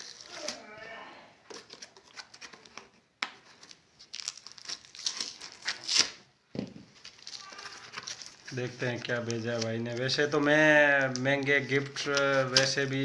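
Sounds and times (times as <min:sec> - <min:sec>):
packaging crinkling and tearing: 0:00.0 - 0:00.7, 0:03.5 - 0:06.3, 0:06.9 - 0:13.0.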